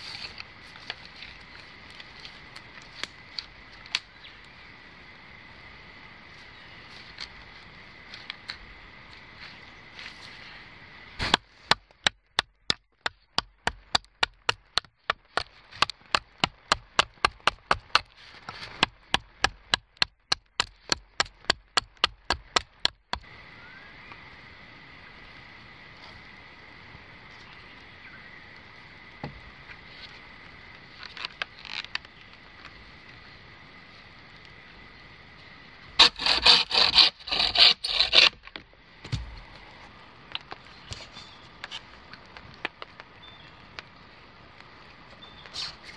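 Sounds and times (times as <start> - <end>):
blade chopping wood: 11.2 - 23.3, 36.0 - 38.4.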